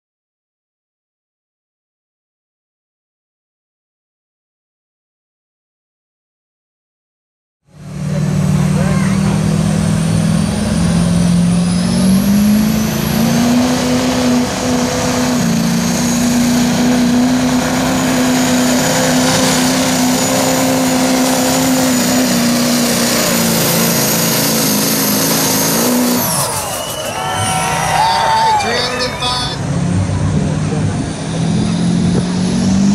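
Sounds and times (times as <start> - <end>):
diesel engine at full throttle: 7.6 - 32.9
high turbo whine: 7.7 - 32.9.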